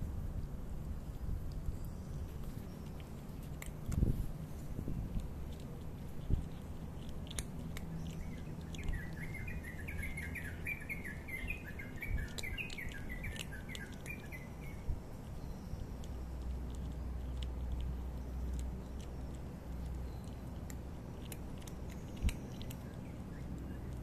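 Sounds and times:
cat crunching dry kibble: 0.0s - 24.0s
bird chirping: 6.0s - 24.0s.

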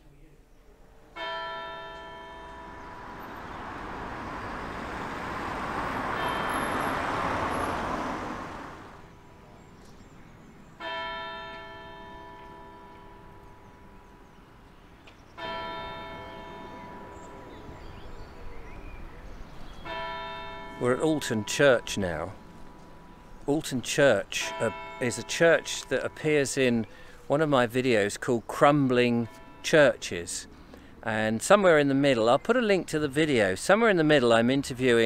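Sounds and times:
church bell tolling: 1.1s - 8.3s, 10.8s - 14.6s, 15.4s - 18.8s, 19.8s - 28.0s, 28.6s - 30.3s
vehicle passing: 2.1s - 9.8s, 15.6s - 27.9s.

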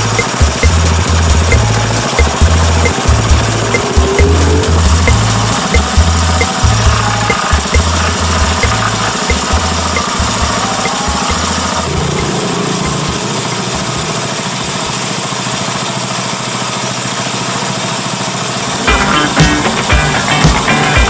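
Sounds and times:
bass-heavy music beat: 0.0s - 14.4s, 18.9s - 21.0s
engine idling: 0.0s - 21.0s.

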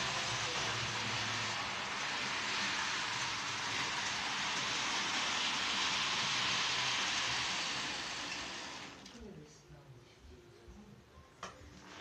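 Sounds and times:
model train whirring on track: 0.0s - 9.2s.

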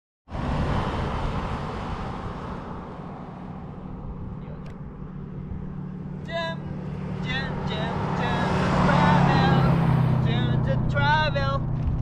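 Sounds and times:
car passing on highway: 0.3s - 12.0s
low rumble: 0.3s - 12.0s.

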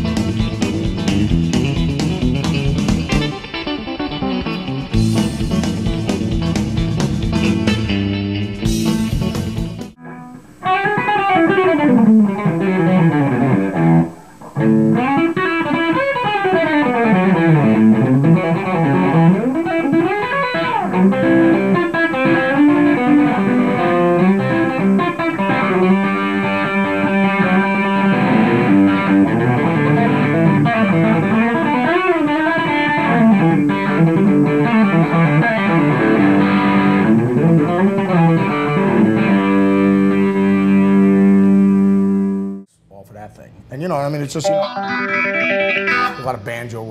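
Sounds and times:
electric guitar country licks: 0.0s - 42.8s, 44.2s - 46.9s.

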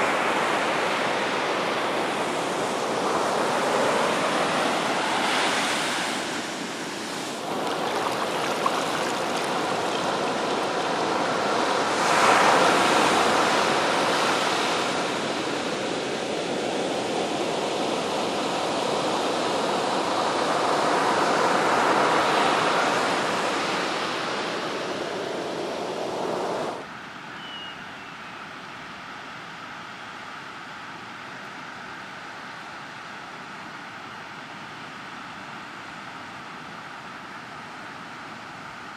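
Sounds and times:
ocean waves breaking on beach: 0.0s - 26.8s.

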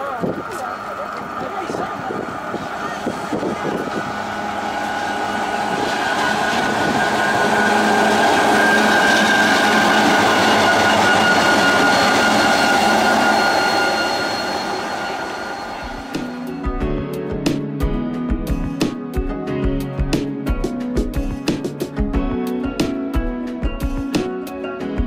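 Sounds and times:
steady high whine: 0.0s - 17.2s
diesel locomotive passing: 0.0s - 17.4s.

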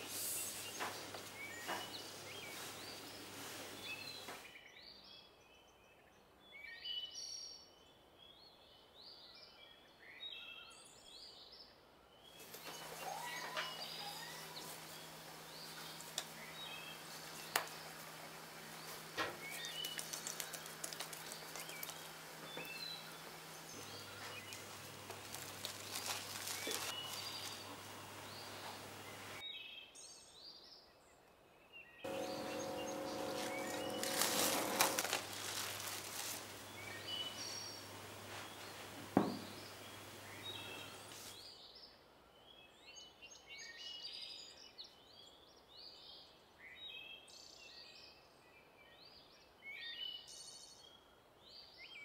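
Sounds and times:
steady low hum: 32.1s - 41.2s.

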